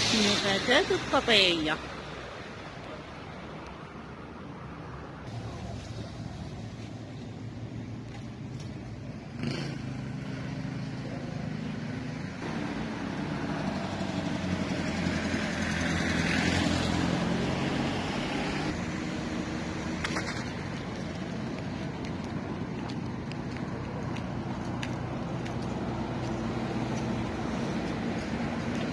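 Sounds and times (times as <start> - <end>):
vehicle engine passing by: 9.2 - 22.0, 22.7 - 28.9.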